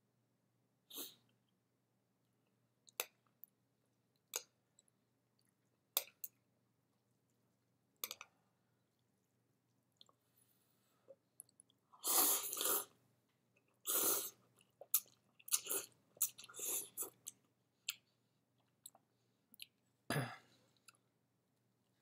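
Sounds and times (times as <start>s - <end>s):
noodles slurped: 12.0s - 13.0s, 13.7s - 18.0s
chewing: 13.6s - 19.8s.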